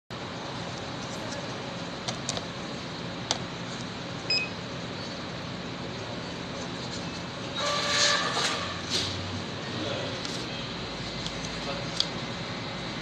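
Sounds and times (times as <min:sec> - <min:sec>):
room hum: 0:00.1 - 0:13.0
scale beep: 0:04.3 - 0:04.6.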